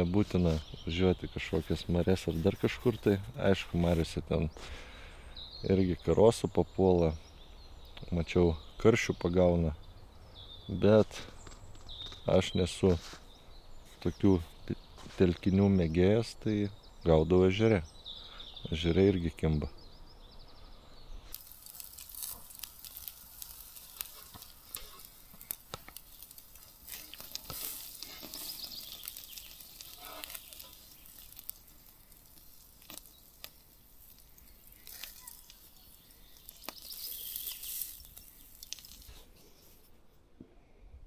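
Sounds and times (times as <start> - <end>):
quiet rustling: 21.2 - 40.3.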